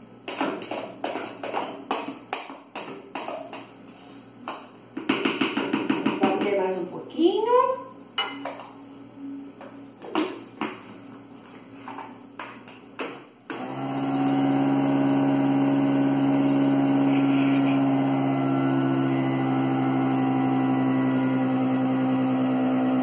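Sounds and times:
blender running: 0:13.5 - 0:23.0.

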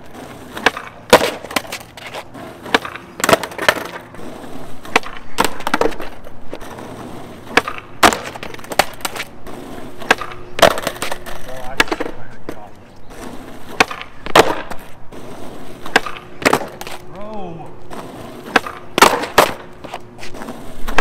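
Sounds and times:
skateboard cracking on asphalt: 0:00.0 - 0:21.0.

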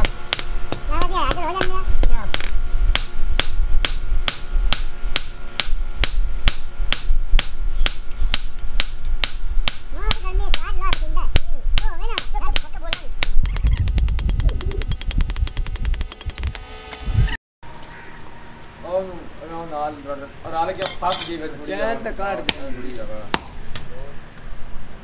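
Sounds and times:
hammer striking metal on anvil: 0:00.0 - 0:16.5, 0:22.5 - 0:23.9.

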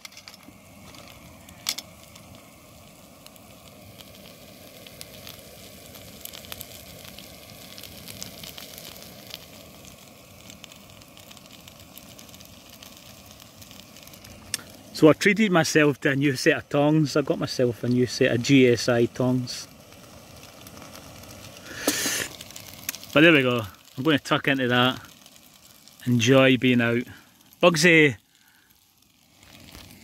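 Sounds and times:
food sizzling in a frying pan: 0:00.0 - 0:30.0.

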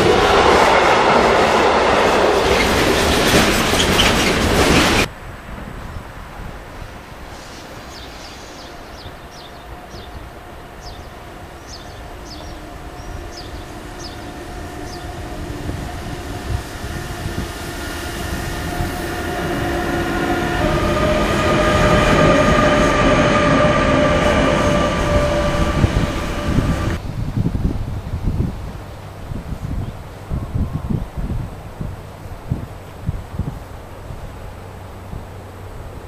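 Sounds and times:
electric locomotive whining: 0:00.0 - 0:05.7, 0:07.4 - 0:27.0
locomotive low rumble: 0:09.6 - 0:27.0.

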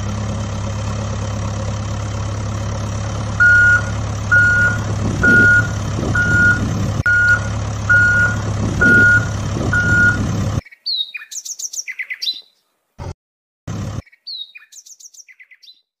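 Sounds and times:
engine hum: 0:00.0 - 0:10.6, 0:13.0 - 0:14.1
truck reversing alarm beeping: 0:03.4 - 0:10.6
birds chirping: 0:03.4 - 0:12.7, 0:14.0 - 0:16.0.

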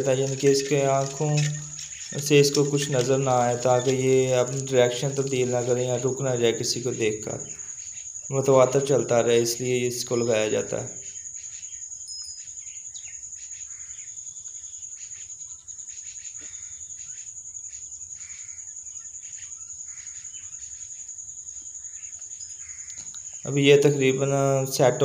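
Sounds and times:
faint bird chirps: 0:00.0 - 0:25.0
high-pitched insect trill: 0:00.0 - 0:25.0.

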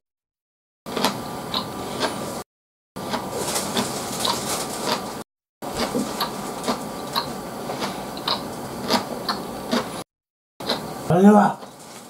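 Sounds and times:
chewing mouth clicks and smacks: 0:05.8 - 0:10.0.

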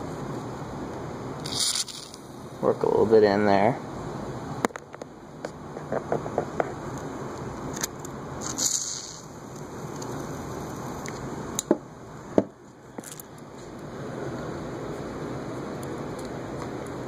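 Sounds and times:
fan motor running: 0:00.0 - 0:17.0
spray hiss: 0:01.4 - 0:02.3, 0:08.4 - 0:09.4.

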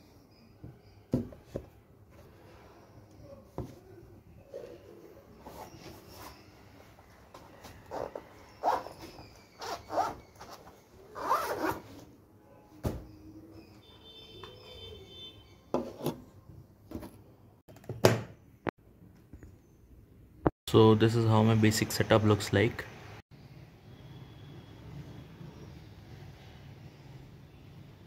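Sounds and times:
cloth rustling and scraping: 0:04.4 - 0:12.1.

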